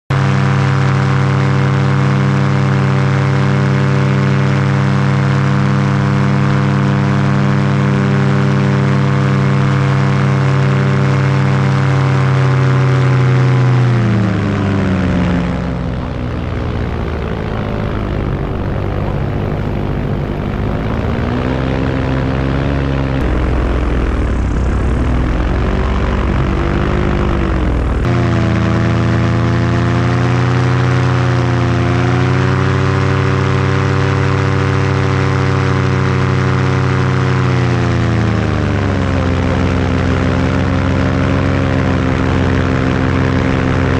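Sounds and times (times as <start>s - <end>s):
paramotor engine and propeller: 0.1s - 43.9s.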